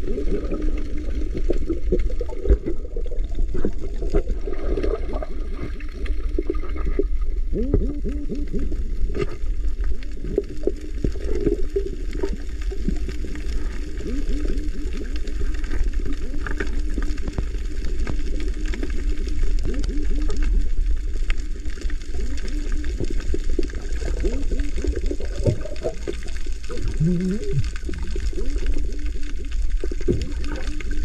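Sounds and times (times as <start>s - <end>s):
bubbling gurgling blips: 0.0s - 31.0s
underwater low rumble: 0.0s - 31.0s.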